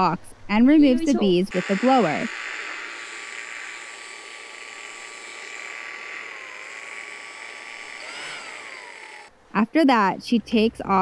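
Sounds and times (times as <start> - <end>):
motor whine: 1.2 - 9.3
handheld blower air rush: 1.5 - 9.3.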